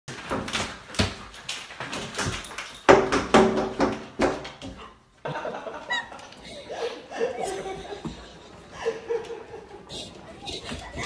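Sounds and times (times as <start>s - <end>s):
window blinds clattering: 0.1s - 4.7s.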